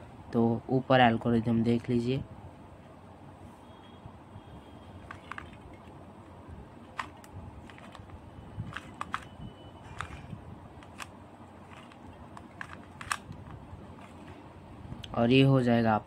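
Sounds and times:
puzzle cube plastic clicks: 5.0 - 6.0, 6.8 - 14.4.

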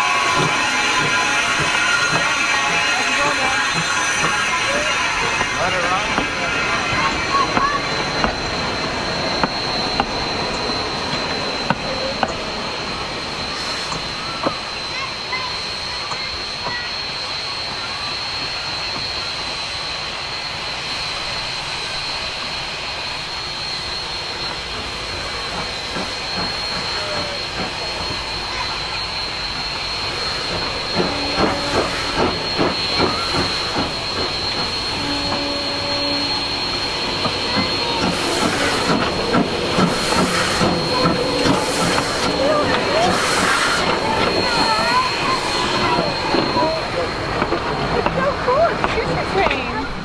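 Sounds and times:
steam hissing: 0.0 - 50.0
steam locomotive exhaust chuffing: 0.0 - 50.0.

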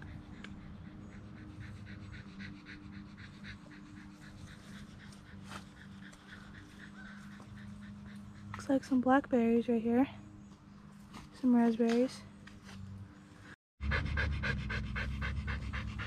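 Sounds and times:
small dog panting: 0.0 - 9.0, 13.8 - 16.0.

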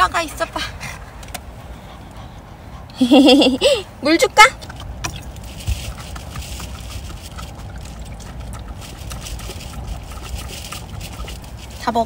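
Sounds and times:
water pouring into plastic bowl: 4.6 - 11.8
wind rumble on microphone: 4.6 - 12.0.

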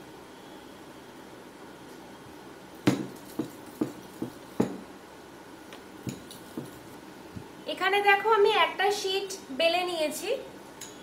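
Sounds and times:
rolling pin knocking on board: 2.9 - 4.8.

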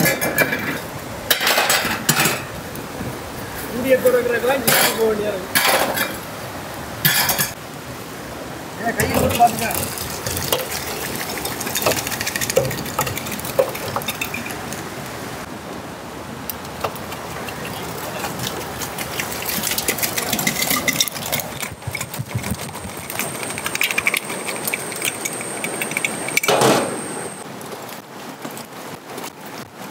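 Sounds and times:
river rushing: 0.0 - 29.9
thin high whine: 22.9 - 27.4.

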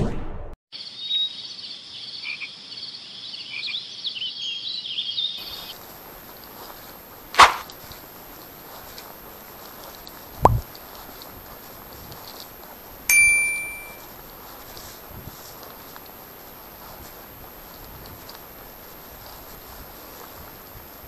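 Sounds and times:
faint background noise: 0.8 - 21.0
sharp knock: 7.4 - 7.7.

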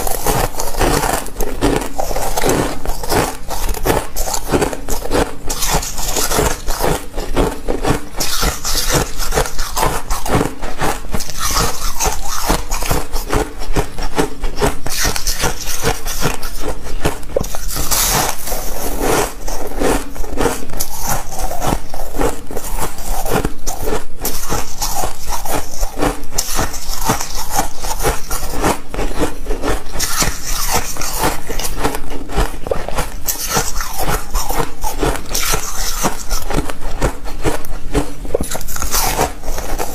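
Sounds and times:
ice crunched between teeth: 0.0 - 39.9.

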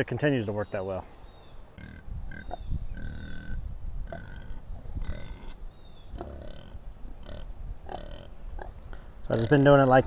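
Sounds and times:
pigs grunting: 1.8 - 9.8.

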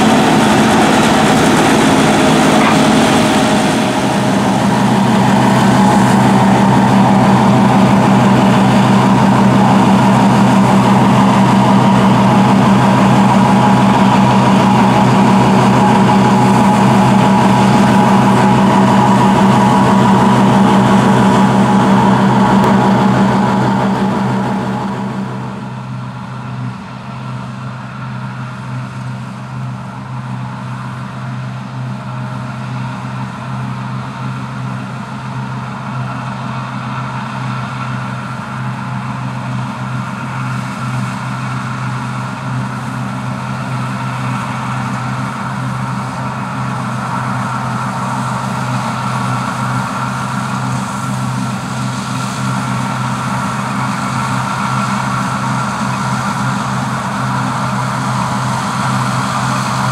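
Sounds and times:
combine harvester running: 0.0 - 59.9.

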